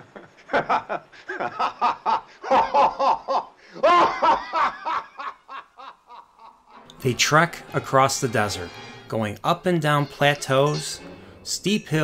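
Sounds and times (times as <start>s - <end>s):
man laughing hysterically: 0.0s - 6.9s.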